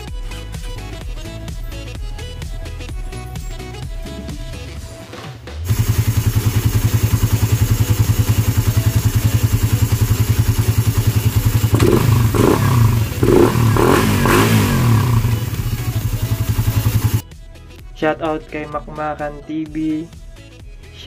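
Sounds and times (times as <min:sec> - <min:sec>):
motorcycle engine idling and revving: 0:05.6 - 0:17.2.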